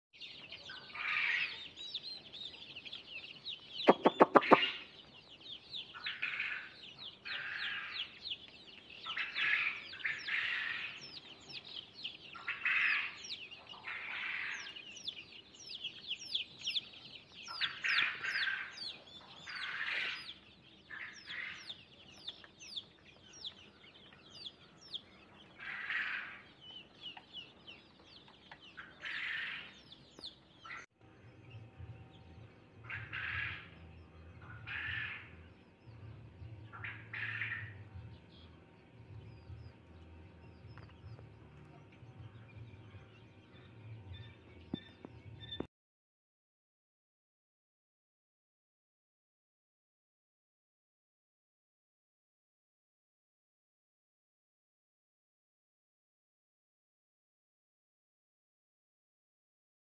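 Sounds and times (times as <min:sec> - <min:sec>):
chicks peeping: 0:00.2 - 0:45.7.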